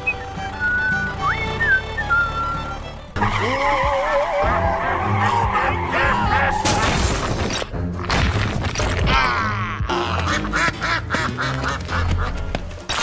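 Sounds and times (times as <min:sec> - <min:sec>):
background music: 0:00.0 - 0:13.0
ducks quacking: 0:03.2 - 0:06.8, 0:09.2 - 0:12.7.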